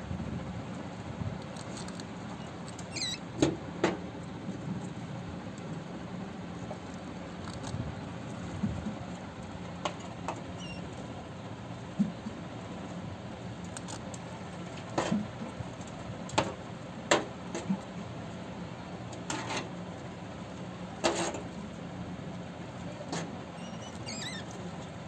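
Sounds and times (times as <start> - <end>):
rat squeaks: 2.4 - 3.3, 10.6 - 10.9, 23.6 - 24.6
rats scrabbling and rustling: 23.1 - 24.9.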